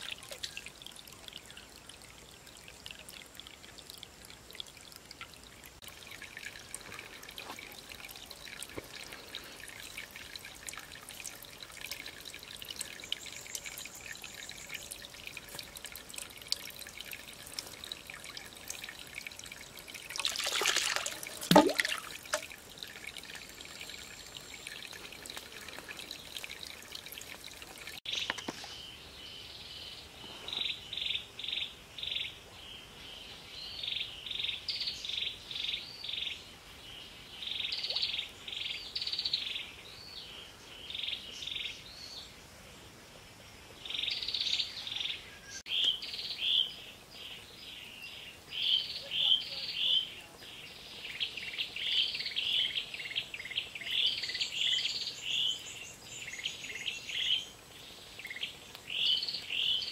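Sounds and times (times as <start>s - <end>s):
water trickling and dripping: 0.0s - 28.7s, 48.5s - 59.9s
water splash: 20.0s - 23.0s.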